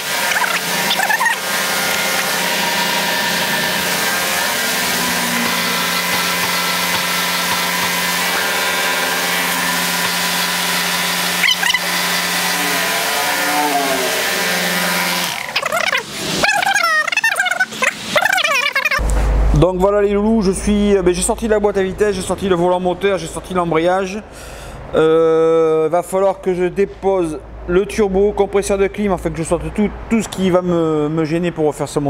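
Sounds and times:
hydraulic pump motor humming: 0.0s - 19.4s.

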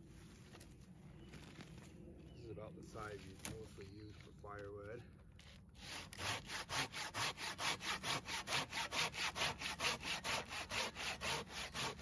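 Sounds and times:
pruning saw rasping through branch: 5.8s - 12.0s.

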